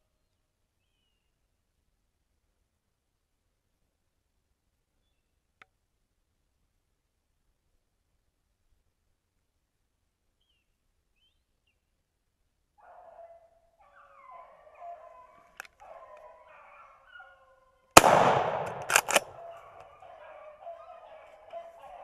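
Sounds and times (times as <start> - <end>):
hounds baying: 12.8 - 17.8, 18.7 - 22.0
shotgun blast: 18.0 - 19.3
sharp clicks of shotgun: 18.0 - 19.4.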